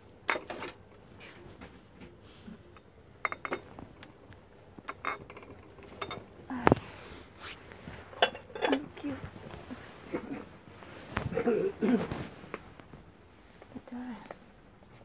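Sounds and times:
glass jars clinking: 3.2 - 3.7, 4.9 - 6.3, 8.1 - 9.0.

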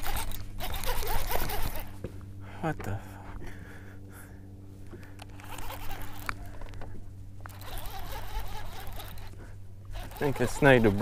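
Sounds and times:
fishing reel whirring: 0.0 - 2.0, 4.9 - 11.0
low steady hum: 0.0 - 11.0.

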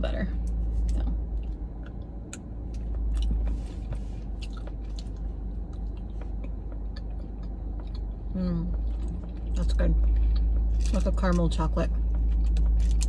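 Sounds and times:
person chewing with wet clicks: 0.4 - 11.4.

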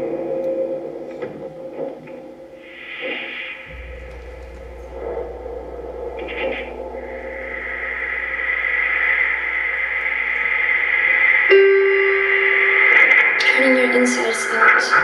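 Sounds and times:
ambient electronic drone music: 0.0 - 15.0.

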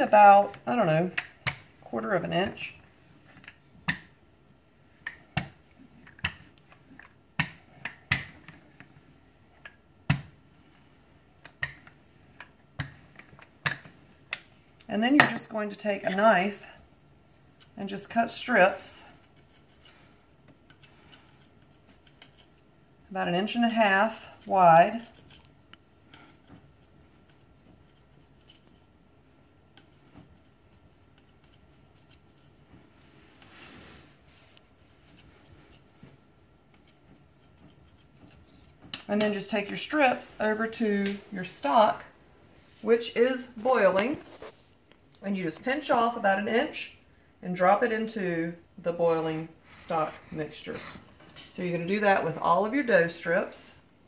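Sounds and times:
knife cutting dough: 17.5 - 22.7, 29.7 - 32.7, 33.4 - 39.6.

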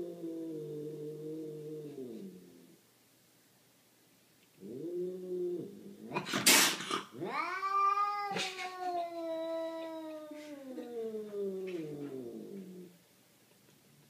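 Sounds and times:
cat hissing: 5.6 - 12.9
cat yowling: 7.2 - 12.4.

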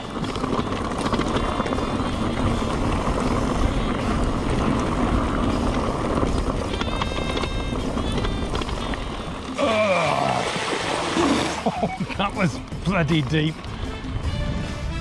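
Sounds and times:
bike tyres splashing through stream: 8.4 - 13.5.

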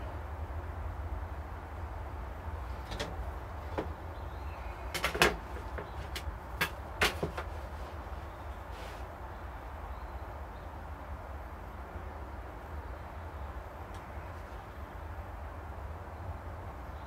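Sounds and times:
sharp knocks and clicks: 4.9 - 7.5
tools knocking on wooden workbench: 5.0 - 7.5.

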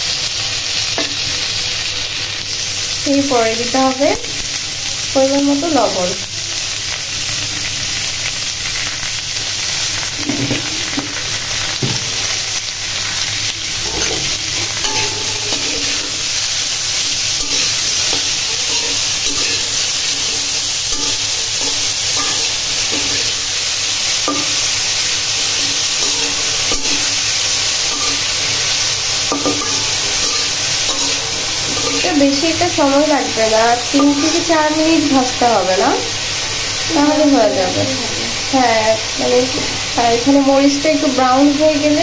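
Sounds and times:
vegetables sizzling in oil: 0.0 - 42.0
spatula scraping a wok: 10.0 - 35.4.

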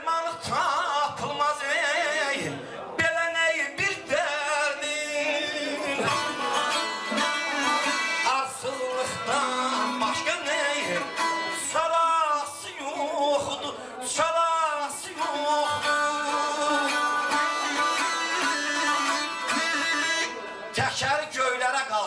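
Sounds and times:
man singing: 0.0 - 22.0
saz strummed and plucked: 5.3 - 13.0, 14.8 - 20.7
reedy wind instrument melody: 6.0 - 9.0, 15.8 - 20.4.

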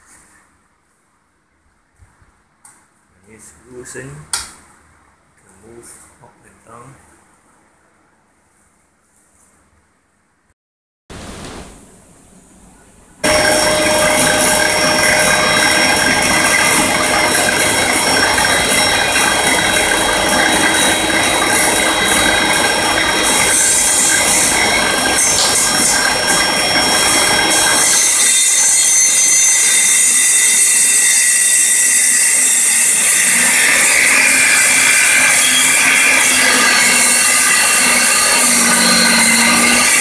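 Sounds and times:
dust extraction vacuum: 13.2 - 28.6
board cut by saw blade: 13.2 - 40.0
table saw whine: 13.2 - 40.0.

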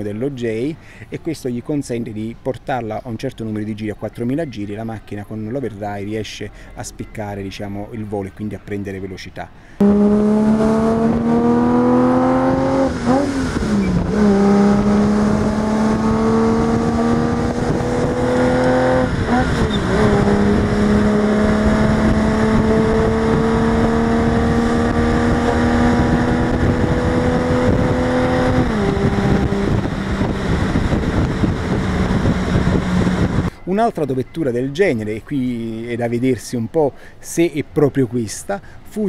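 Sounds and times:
car engine accelerating: 9.8 - 33.5.

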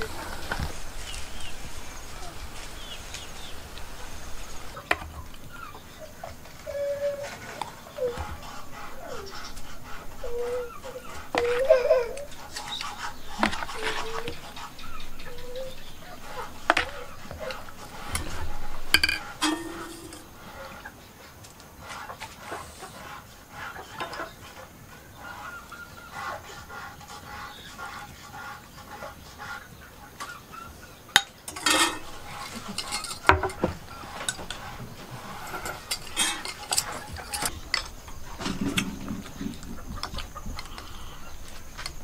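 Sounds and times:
spoon clinking against bowls: 18.1 - 20.3, 31.2 - 37.9.

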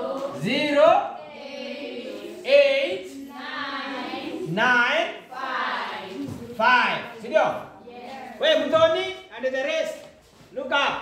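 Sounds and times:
children chanting: 0.0 - 7.0.

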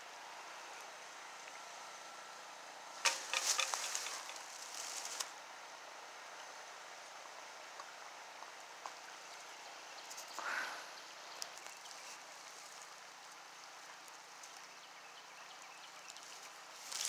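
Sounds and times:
outdoor hiss: 0.0 - 17.0
footsteps on dry leaves: 3.0 - 5.3, 16.2 - 17.0.

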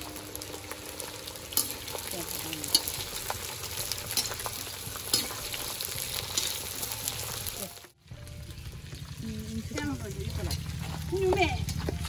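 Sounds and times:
meat sizzling in a wok: 0.0 - 11.2
metal spatula scraping wok: 1.3 - 7.6, 9.7 - 11.1.

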